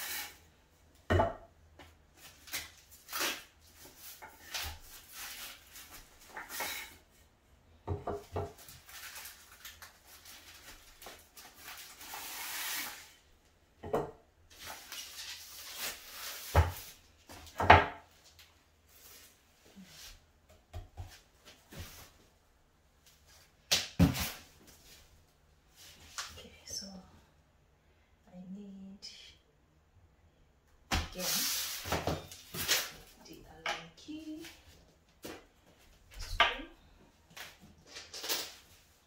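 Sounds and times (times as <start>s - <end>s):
plastic packaging rustling: 8.6s - 13.1s.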